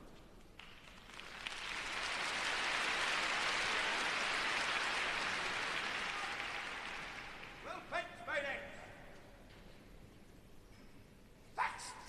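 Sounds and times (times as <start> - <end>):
crowd applauding: 0.6 - 7.7.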